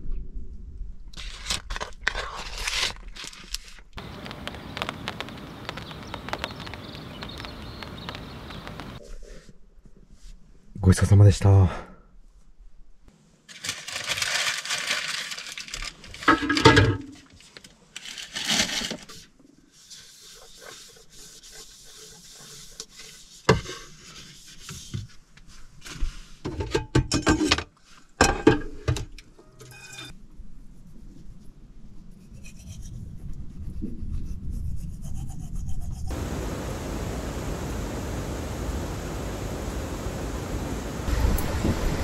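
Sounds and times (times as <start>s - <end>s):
paper rubbing on wooden plate: 19.7s - 25.1s.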